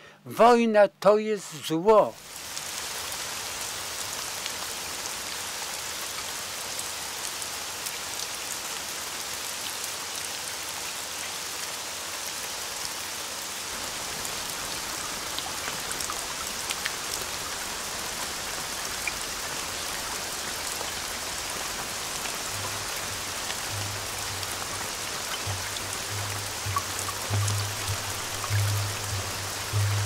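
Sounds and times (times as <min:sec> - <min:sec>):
steady rain: 0:01.4 - 0:30.0
drops ticking: 0:22.2 - 0:30.0.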